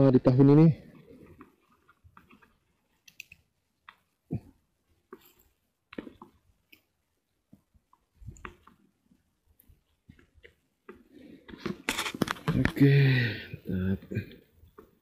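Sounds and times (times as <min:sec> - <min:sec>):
dry grass rustling: 0:00.8 - 0:12.7.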